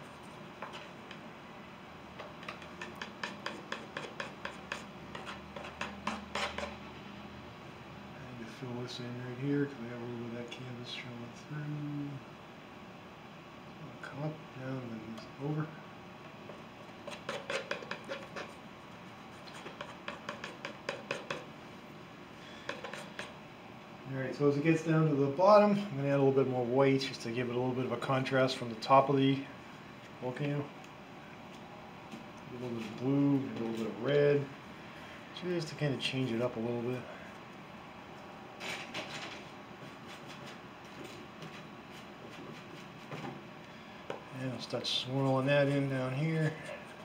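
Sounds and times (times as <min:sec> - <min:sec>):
palette knife scraping paint on canvas: 0:00.6 - 0:01.0, 0:02.4 - 0:06.8, 0:17.0 - 0:18.6, 0:19.3 - 0:21.5, 0:22.7 - 0:23.4.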